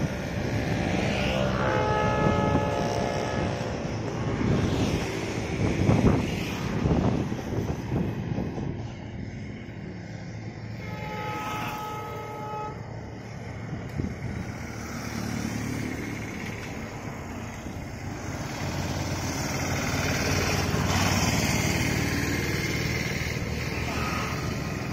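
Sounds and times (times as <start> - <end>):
passing motorcycle engine: 0.0 - 10.6, 13.9 - 24.9
three-wheeled vehicle passing: 0.0 - 24.9
two-tone horn: 1.3 - 3.9, 10.7 - 12.9.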